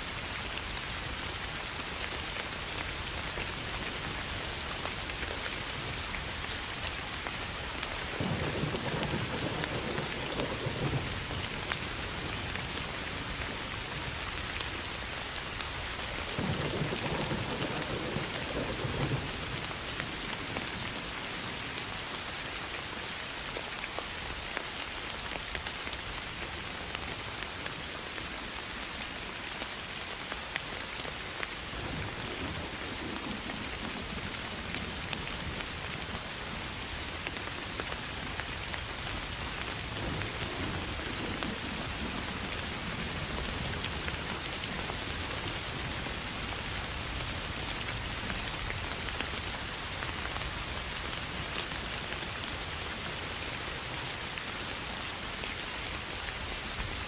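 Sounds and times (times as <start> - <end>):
soft rain falling: 0.0 - 57.0
thunder rolling: 8.2 - 11.7, 16.4 - 19.6.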